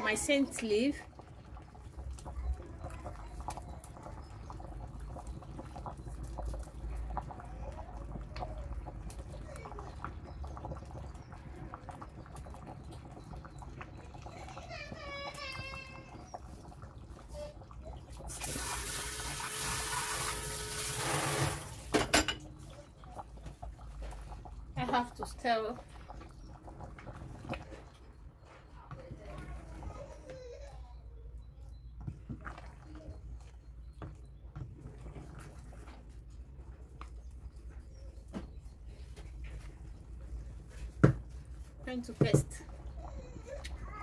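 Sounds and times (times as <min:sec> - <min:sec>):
soup simmering with bubbles popping: 0:00.0 - 0:44.0
water running: 0:14.3 - 0:22.4.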